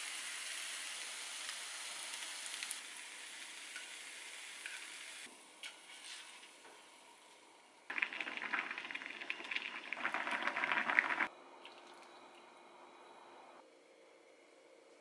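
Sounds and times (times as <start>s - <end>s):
soup pouring and splashing: 7.9s - 12.5s.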